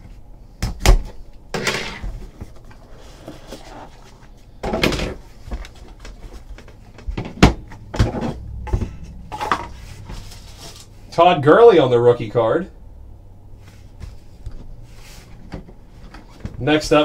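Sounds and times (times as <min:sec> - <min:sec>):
plastic scraping and sliding: 0:01.6 - 0:04.4.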